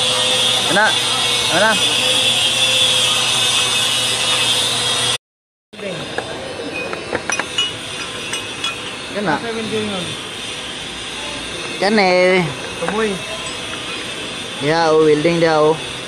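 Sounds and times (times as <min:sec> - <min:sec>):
mechanical hum and hiss: 0:00.0 - 0:05.2, 0:05.8 - 0:16.0
metal parts clinking: 0:06.8 - 0:09.2.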